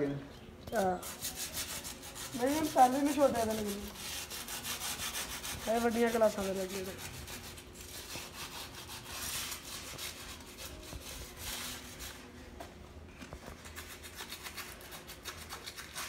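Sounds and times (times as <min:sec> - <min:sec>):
sandpaper scraping metal: 0:00.7 - 0:12.3, 0:13.6 - 0:16.0.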